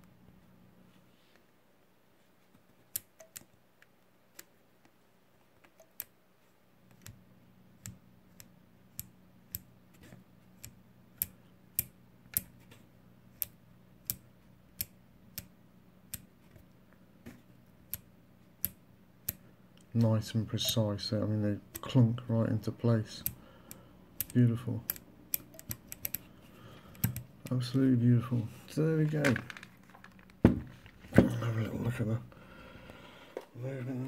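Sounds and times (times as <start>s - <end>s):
rotary switch clicking: 13.4s - 15.5s, 16.1s - 16.3s, 23.2s - 26.2s.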